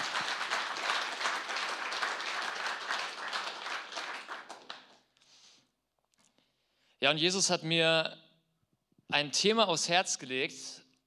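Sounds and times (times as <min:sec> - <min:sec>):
congregation applauding: 0:00.0 - 0:05.1.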